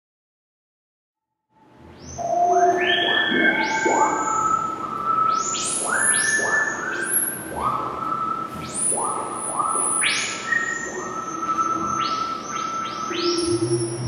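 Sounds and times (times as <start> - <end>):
synthesizer music with rising tones: 13.0 - 14.0.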